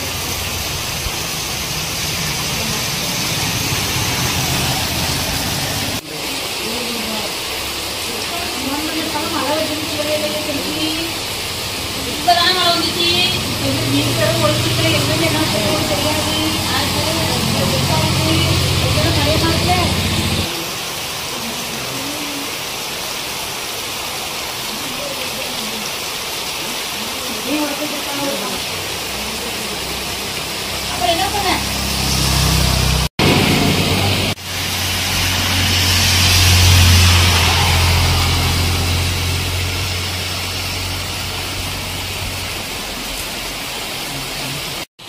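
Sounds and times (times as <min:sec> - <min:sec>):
truck engine humming: 0:00.0 - 0:06.0, 0:09.4 - 0:20.5, 0:29.0 - 0:42.9
heavy rain on road: 0:00.0 - 0:44.9.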